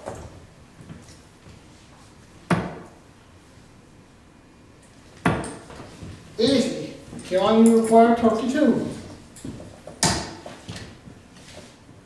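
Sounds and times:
darts striking dartboard: 0:02.5 - 0:02.9, 0:05.2 - 0:05.6, 0:10.0 - 0:10.4.

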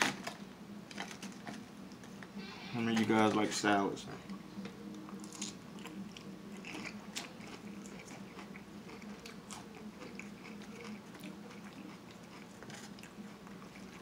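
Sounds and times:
person chewing food: 0:05.0 - 0:14.0.

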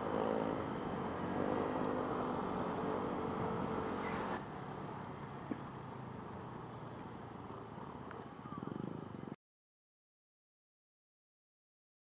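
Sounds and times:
wind and road noise: 0:00.0 - 0:09.4.

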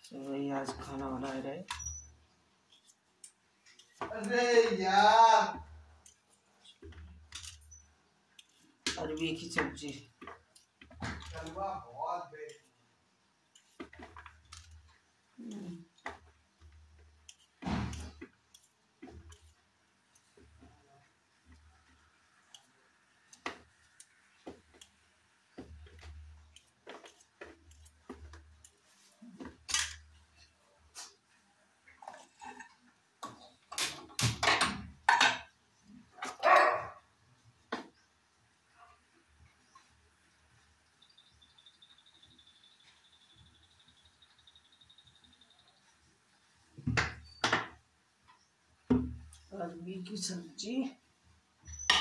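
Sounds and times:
dog barking: 0:36.3 - 0:37.0.

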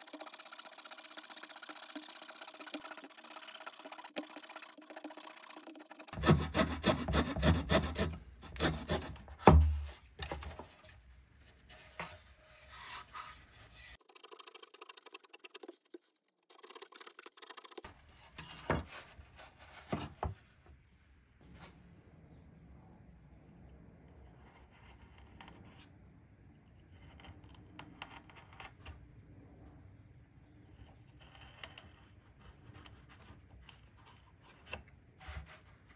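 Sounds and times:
blade scraping wood: 0:02.4 - 0:09.8.

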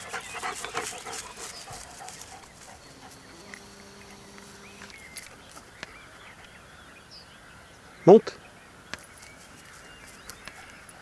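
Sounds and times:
grass rustling: 0:00.0 - 0:06.7, 0:08.9 - 0:11.0
distant bird chirps: 0:00.0 - 0:11.0
low steady hum: 0:02.2 - 0:05.5.

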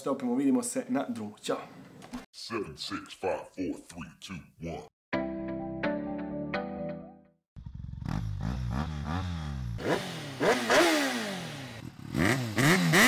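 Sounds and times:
motorcycle engine revving: 0:07.6 - 0:13.0.

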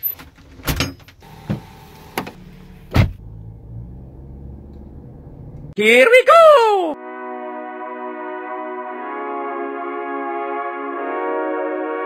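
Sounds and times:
car engine rumbling: 0:00.3 - 0:05.8
door thud: 0:02.9 - 0:03.2.

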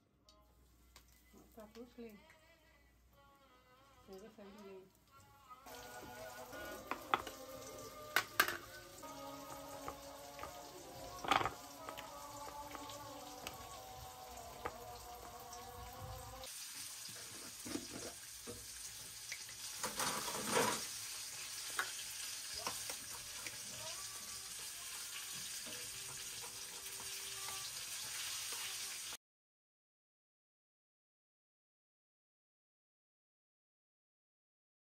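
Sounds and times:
plastic tubs and spoon clicking: 0:09.8 - 0:13.6.

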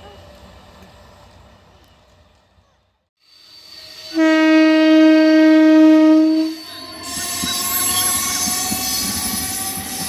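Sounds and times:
distant train: 0:00.0 - 0:10.0
train horn blast: 0:04.1 - 0:06.6.

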